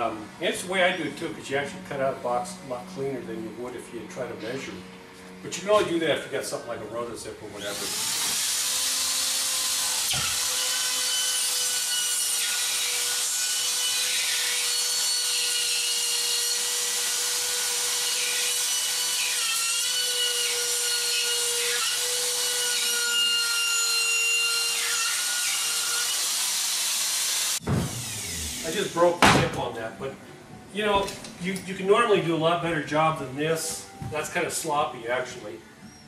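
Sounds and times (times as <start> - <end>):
spiral saw cutting drywall: 7.6 - 29.2.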